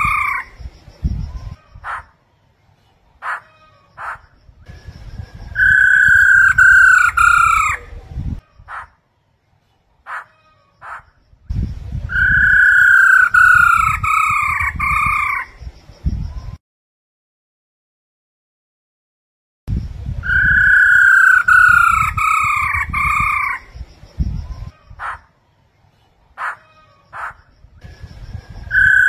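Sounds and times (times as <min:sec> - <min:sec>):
bird calling harsh repeated notes: 0:00.0 - 0:00.8, 0:01.4 - 0:02.4, 0:03.2 - 0:09.1, 0:10.0 - 0:11.2, 0:12.1 - 0:15.6, 0:20.2 - 0:23.9, 0:24.6 - 0:25.6, 0:26.4 - 0:27.6, 0:28.6 - 0:29.0.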